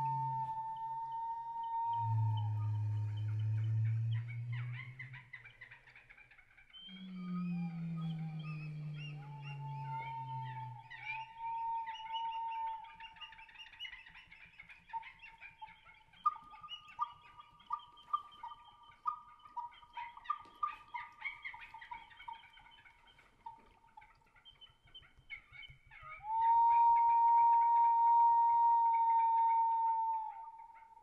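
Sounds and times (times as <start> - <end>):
whistling wind instruments: 0.0 - 5.4, 6.8 - 13.9, 26.0 - 31.0.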